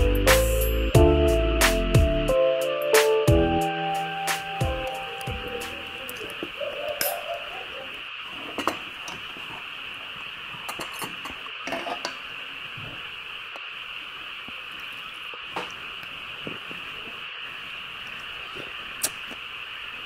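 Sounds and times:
steady high hiss: 0:00.0 - 0:20.0
chopsticks and dishes clicking: 0:06.0 - 0:07.4.

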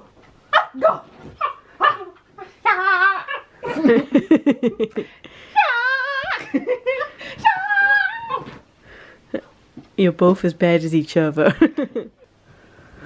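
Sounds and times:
person giggling: 0:03.6 - 0:05.2.

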